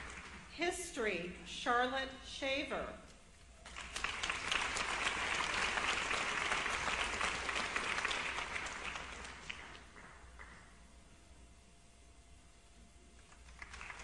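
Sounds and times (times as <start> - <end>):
audience applauding: 0.0 - 0.5, 3.6 - 10.7, 13.2 - 14.0.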